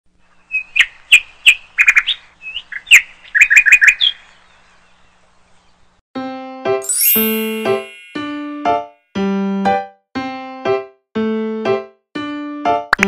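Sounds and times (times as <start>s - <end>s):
bird chirping: 0.3s - 6.0s.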